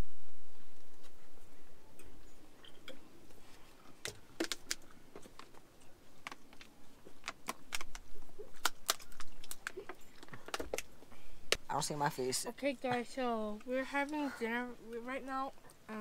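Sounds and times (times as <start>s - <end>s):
people eating: 1.9s - 16.0s
plastic water bottle handled: 3.3s - 10.9s.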